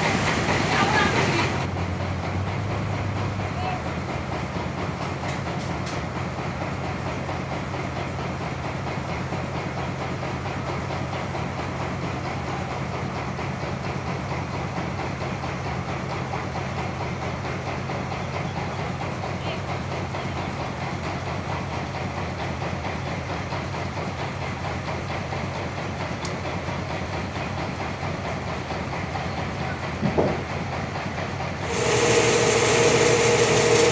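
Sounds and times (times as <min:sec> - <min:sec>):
rattling mechanical whir: 0:20.4 - 0:33.9
motor hum: 0:31.6 - 0:33.9.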